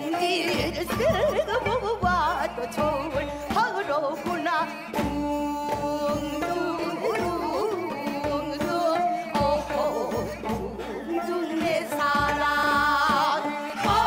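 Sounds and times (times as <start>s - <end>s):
traditional instrumental accompaniment: 0.0s - 14.0s
women singing with vibrato: 0.0s - 14.0s
drum strokes: 0.5s - 14.0s.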